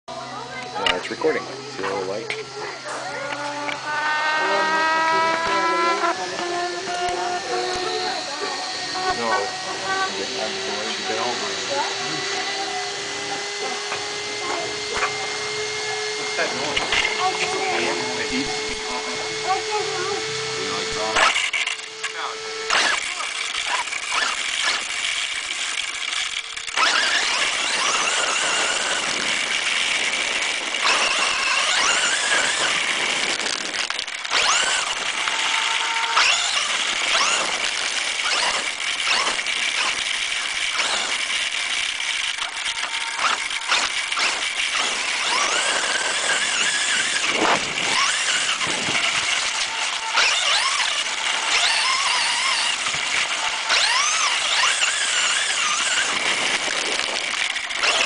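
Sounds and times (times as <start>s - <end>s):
toy car motor whining: 0.1s - 58.0s
tyres on gravel and grass: 21.1s - 58.0s.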